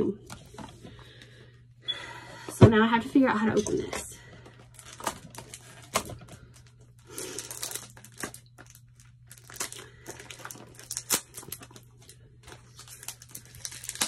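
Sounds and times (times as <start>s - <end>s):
plastic wrapping crinkling: 4.4s - 14.0s.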